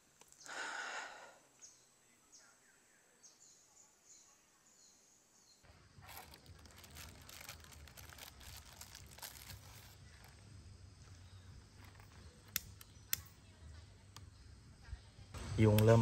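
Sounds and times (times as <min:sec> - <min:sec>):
faint crinkly rustling: 0:05.7 - 0:12.8.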